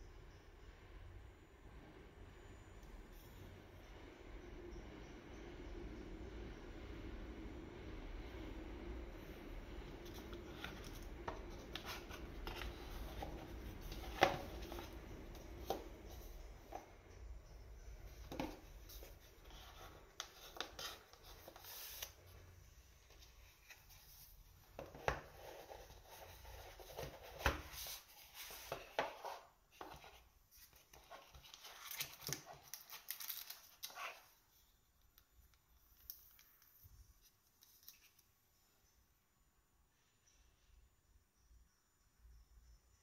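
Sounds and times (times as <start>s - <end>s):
cardboard scraping and rustling: 10.1s - 16.9s, 23.1s - 34.3s.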